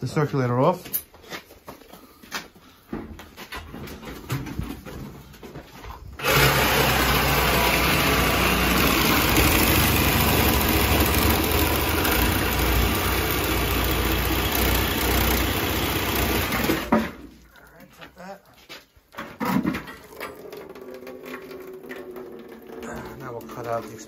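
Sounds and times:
power saw cutting steel pipe: 0:06.2 - 0:17.2.

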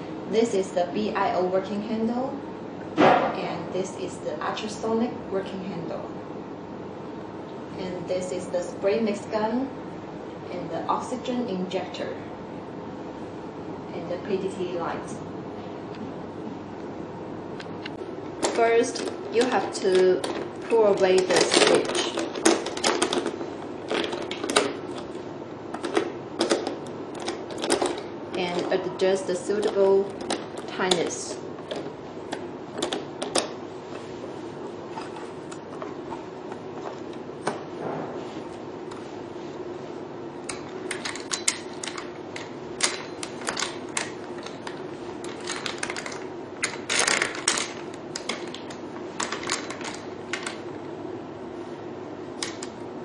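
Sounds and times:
background hum and hiss: 0:00.0 - 0:53.0
metal parts clicking and knocking: 0:25.7 - 0:28.7, 0:40.5 - 0:50.7.

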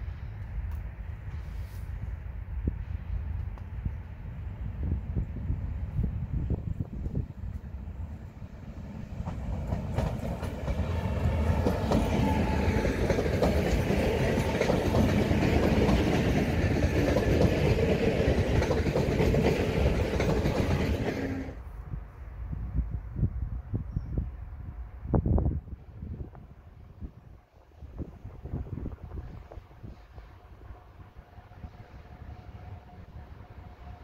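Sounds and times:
train passing on tracks: 0:00.0 - 0:34.0
train wheel clicks: 0:09.2 - 0:21.5.

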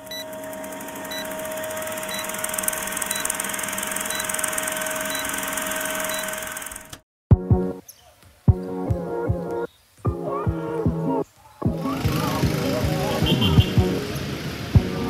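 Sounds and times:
film projector whirr: 0:00.0 - 0:07.0
music with loud hit: 0:11.7 - 0:15.0.

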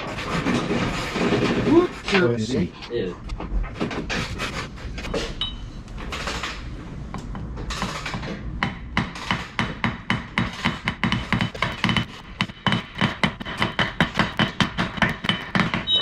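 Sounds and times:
hammer tapping metal: 0:08.6 - 0:16.0.

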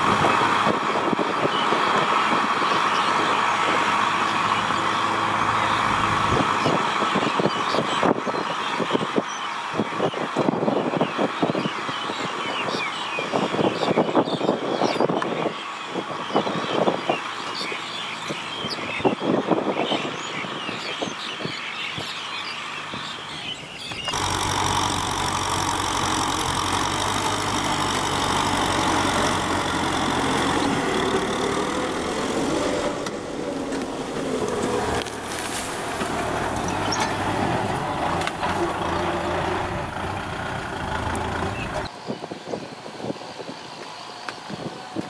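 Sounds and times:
tractor diesel engine under load: 0:00.0 - 0:13.7, 0:22.2 - 0:41.9.

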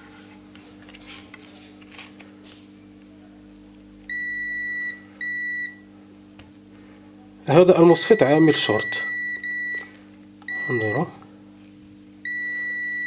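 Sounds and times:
multimeter continuity beeps: 0:04.1 - 0:05.8, 0:08.0 - 0:09.9, 0:10.5 - 0:11.1, 0:12.2 - 0:13.0.

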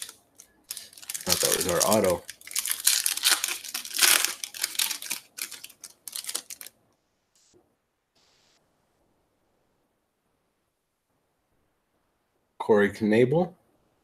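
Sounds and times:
foil wrapper crinkling and tearing: 0:00.0 - 0:06.7.

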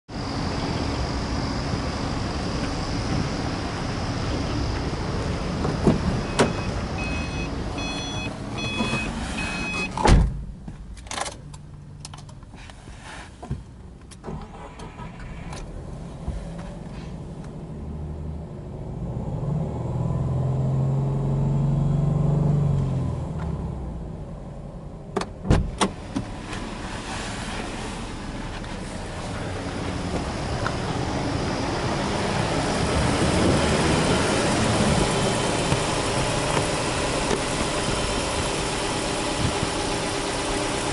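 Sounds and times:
warning chime beeping: 0:06.2 - 0:09.9
car engine fast idle: 0:14.3 - 0:15.5.

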